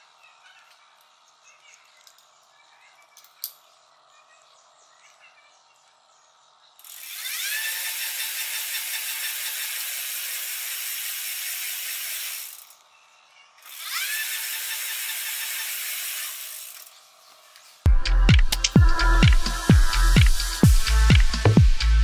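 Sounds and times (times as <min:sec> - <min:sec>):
electric bike motor whirring: 0:06.4 - 0:17.9.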